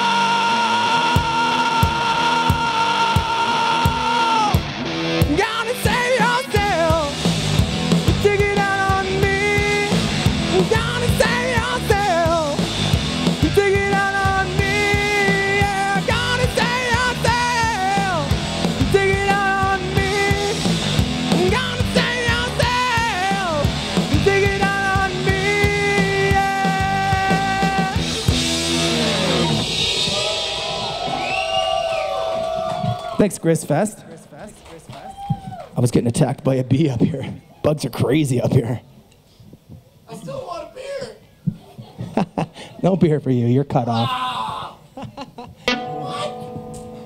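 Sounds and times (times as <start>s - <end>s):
man singing: 0.0s - 4.6s, 5.2s - 7.2s, 8.0s - 12.7s, 13.4s - 28.1s
live rock band: 0.0s - 33.1s.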